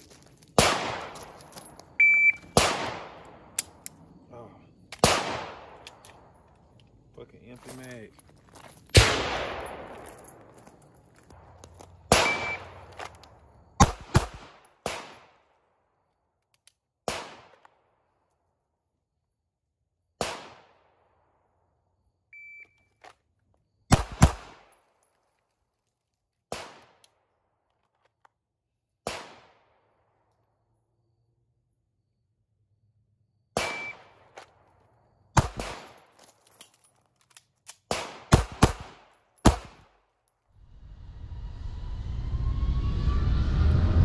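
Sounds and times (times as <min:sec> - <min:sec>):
gunshots with echo: 0:02.5 - 0:03.5, 0:05.0 - 0:05.8, 0:09.0 - 0:10.3, 0:12.1 - 0:12.9, 0:33.6 - 0:34.2.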